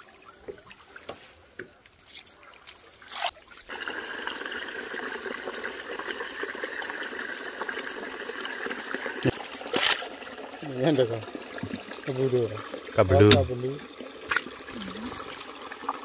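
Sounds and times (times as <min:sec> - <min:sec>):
water trickling: 0:01.8 - 0:16.0.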